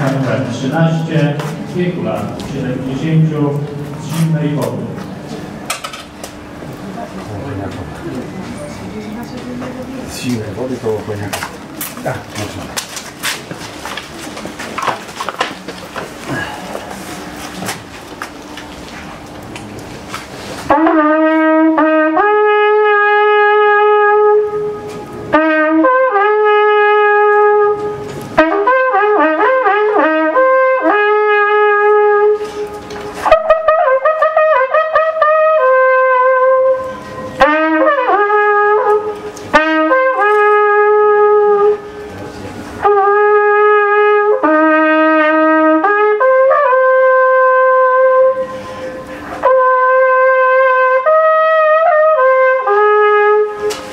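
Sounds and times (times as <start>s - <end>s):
wooden horn playing: 20.3s - 53.9s.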